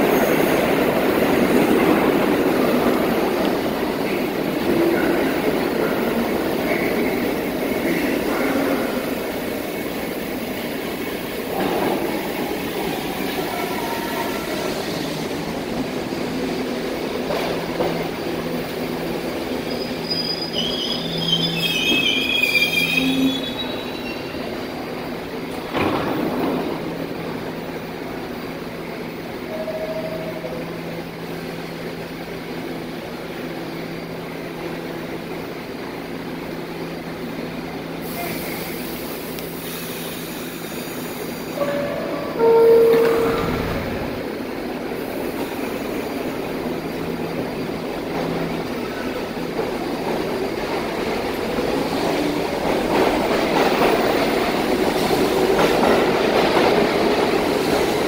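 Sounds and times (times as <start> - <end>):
subway train braking: 0.0 - 58.0
train humming: 0.0 - 58.0
wheels squealing on rails: 17.4 - 24.8.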